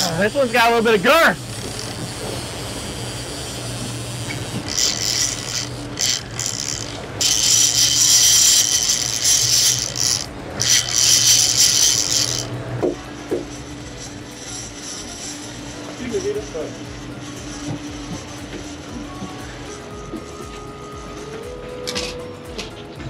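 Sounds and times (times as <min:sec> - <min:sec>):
fishing reel buzzing and ratcheting: 0:00.0 - 0:22.2
boat engines droning: 0:00.0 - 0:23.0.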